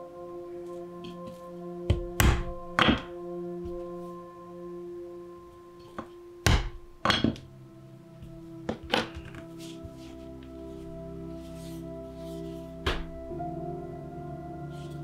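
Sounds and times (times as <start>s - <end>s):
background music with held notes: 0.0s - 15.0s
mallet knocks on leather: 1.9s - 3.1s, 6.5s - 7.4s.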